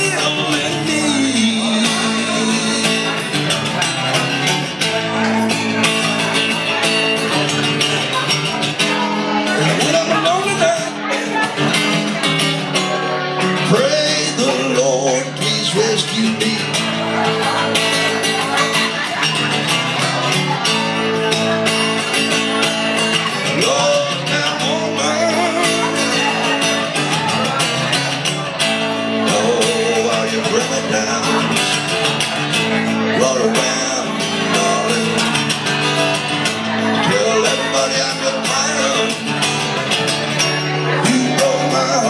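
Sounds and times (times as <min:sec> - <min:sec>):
man singing: 0:00.0 - 0:05.2, 0:08.9 - 0:18.3, 0:23.1 - 0:42.0
blues band playing: 0:00.0 - 0:42.0.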